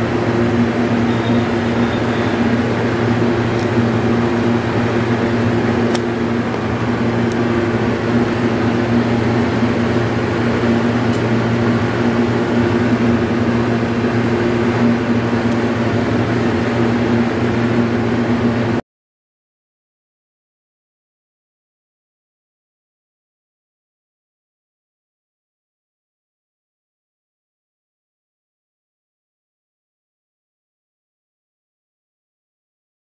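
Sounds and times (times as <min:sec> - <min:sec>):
mechanical hum: 0:00.0 - 0:18.8.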